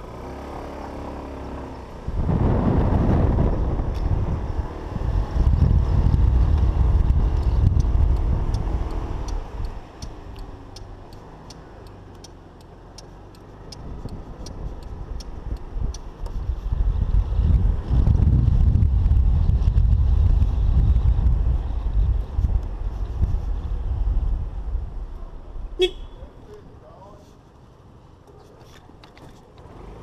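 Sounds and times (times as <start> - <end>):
wind on microphone: 2.0 - 11.0, 13.7 - 25.7
turn signal ticking: 6.5 - 16.4.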